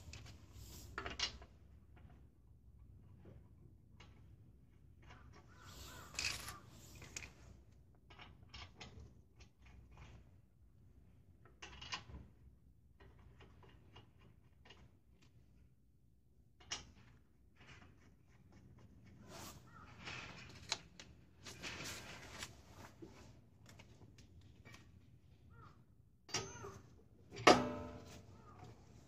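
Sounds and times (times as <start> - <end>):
rustling: 5.8 - 7.3, 19.2 - 23.9.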